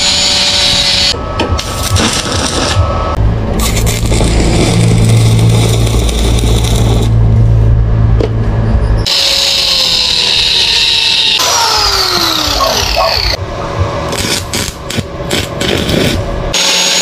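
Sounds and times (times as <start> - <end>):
angle grinder cutting steel pipe: 0.0 - 1.2, 9.0 - 13.4, 16.5 - 17.0
welding arc crackling: 0.0 - 2.8, 3.5 - 7.3, 14.1 - 17.0
welder humming: 0.0 - 7.2, 9.0 - 17.0.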